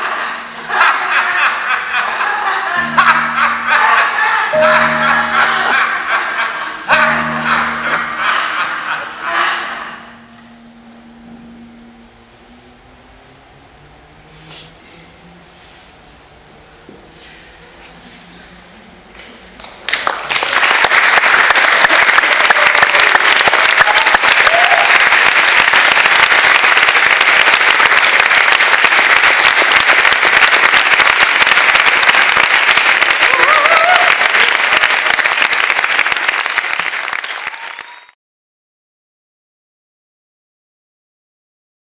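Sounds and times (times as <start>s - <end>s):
audience applauding: 0.0s - 10.7s, 19.6s - 38.2s
people whooping: 21.6s - 25.3s, 33.0s - 35.1s, 37.1s - 38.2s.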